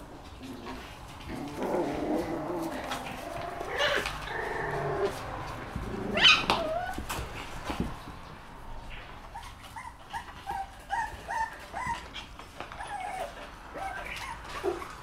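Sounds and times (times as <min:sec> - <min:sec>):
puppies growling and whining: 0:00.0 - 0:07.6, 0:09.2 - 0:15.0
puppy yipping: 0:06.1 - 0:07.0, 0:09.3 - 0:15.0.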